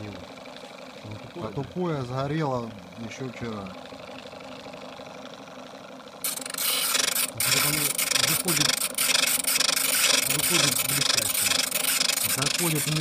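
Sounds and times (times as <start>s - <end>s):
drill bit grinding on stone: 6.2s - 13.0s.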